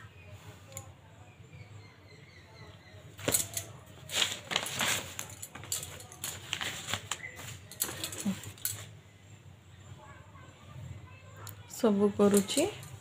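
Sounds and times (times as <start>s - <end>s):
paper rustling: 3.2s - 8.9s.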